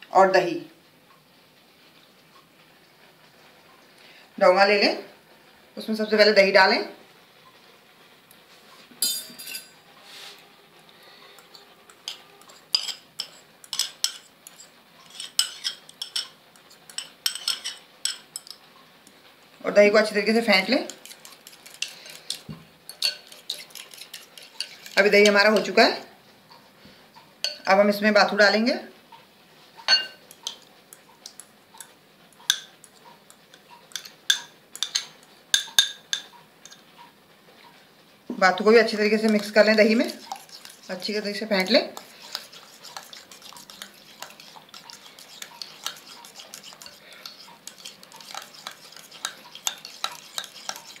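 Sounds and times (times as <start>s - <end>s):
metal spoon clinking against glass: 9.0s - 9.8s, 22.9s - 23.6s, 29.9s - 30.2s
metal spoon clinking on bowl: 9.0s - 9.8s, 12.0s - 16.3s, 16.9s - 18.6s, 21.2s - 25.4s, 29.9s - 30.6s, 33.9s - 36.8s, 41.6s - 51.0s.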